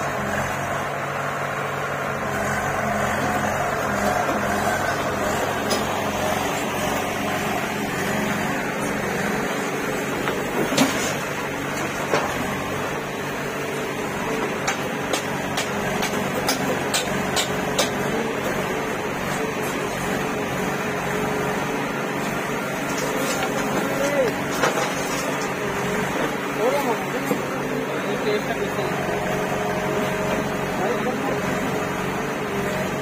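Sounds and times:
diesel engines running: 0:00.0 - 0:33.0
earth and stones clattering into trolley: 0:22.8 - 0:25.6.

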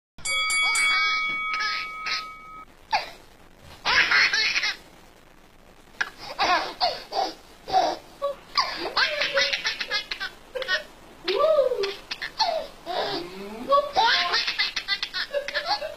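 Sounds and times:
baby laughing: 0:01.5 - 0:02.4, 0:03.8 - 0:04.8, 0:06.0 - 0:15.9.

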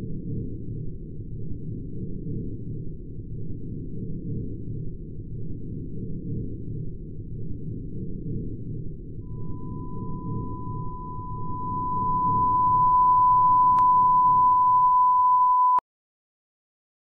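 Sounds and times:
low background rumble: 0:00.0 - 0:15.2
high-pitched electronic beep: 0:09.2 - 0:15.8.

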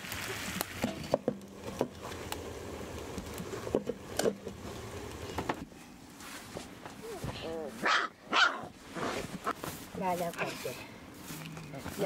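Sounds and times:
potatoes sizzling in a pan: 0:00.0 - 0:04.6.

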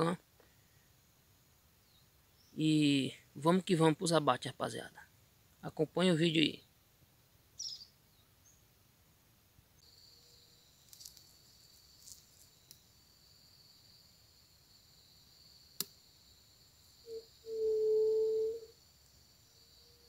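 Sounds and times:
faint high-pitched whine: 0:00.0 - 0:20.0.

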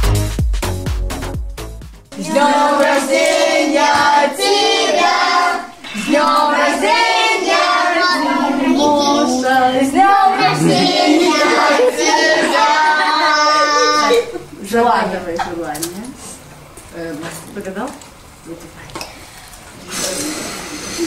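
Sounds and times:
children and woman singing: 0:02.1 - 0:14.4.

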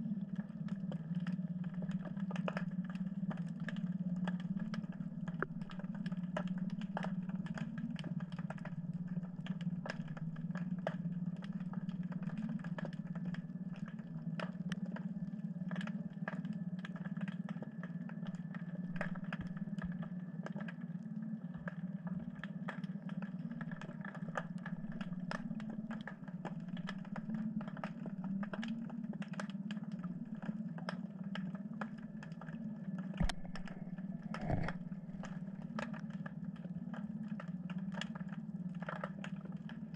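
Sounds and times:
low underwater hum: 0:00.0 - 0:39.9.

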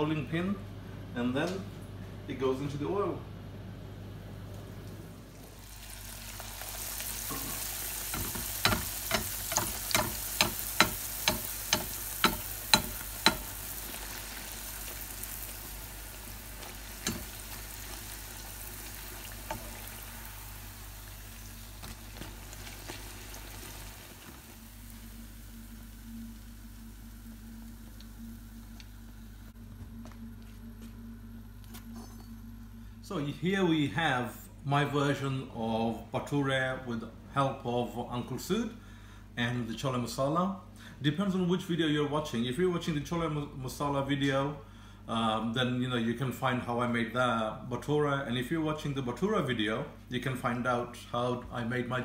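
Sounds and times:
dough sizzling in hot oil: 0:05.3 - 0:28.6.

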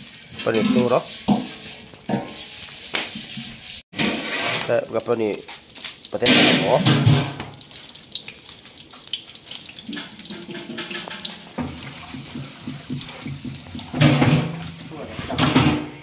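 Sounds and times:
water running and splashing: 0:05.4 - 0:15.5.

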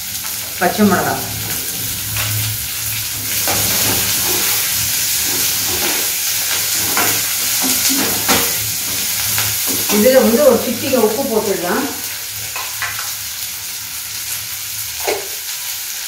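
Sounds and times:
vegetables sizzling in hot oil: 0:00.0 - 0:16.0
steel ladle scraping a pan: 0:01.4 - 0:10.1.

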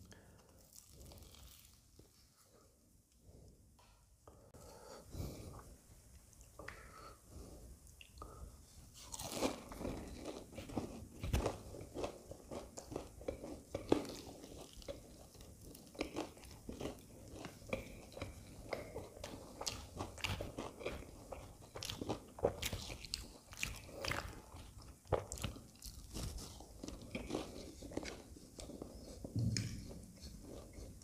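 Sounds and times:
crunching and chewing: 0:09.0 - 0:31.0.

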